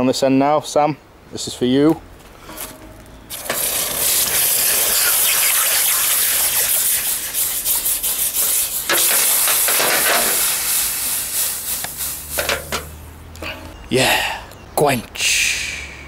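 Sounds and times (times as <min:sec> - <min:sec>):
hot steel hissing in water: 0:03.3 - 0:12.8.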